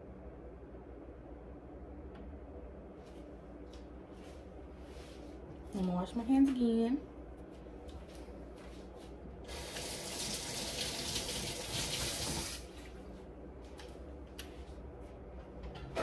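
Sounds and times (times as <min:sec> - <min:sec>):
faucet water running: 0:09.5 - 0:12.7.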